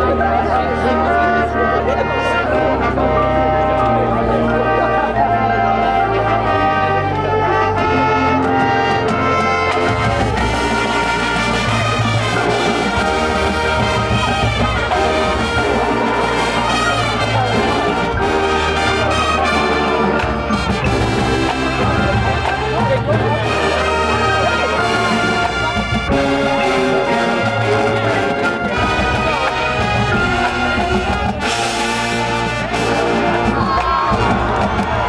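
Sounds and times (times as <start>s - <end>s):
brass holding chords: 0.0s - 35.0s
drums and percussion: 8.2s - 35.0s.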